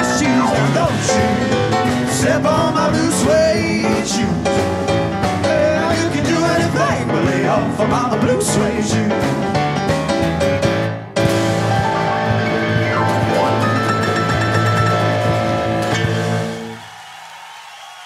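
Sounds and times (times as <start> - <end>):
person singing: 0.0 - 4.7, 5.4 - 9.4
rock and roll band music: 0.0 - 17.0.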